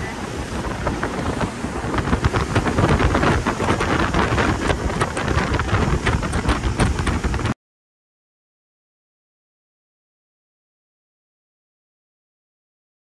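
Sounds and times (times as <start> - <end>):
wind buffeting the microphone: 0.0 - 7.6.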